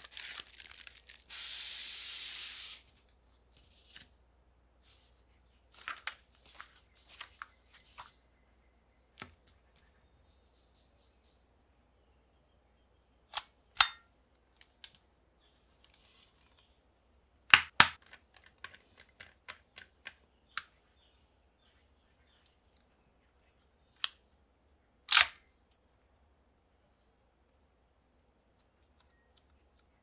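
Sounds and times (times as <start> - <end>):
plastic toy clicks and snaps: 25.1 - 25.4.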